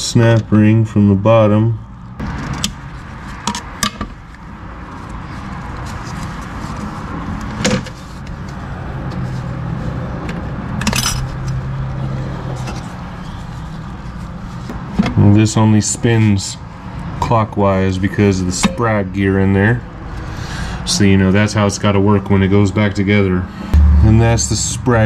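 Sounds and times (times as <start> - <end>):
metal parts clicking and scraping: 10.8 - 11.6
steady low hum: 23.7 - 25.0.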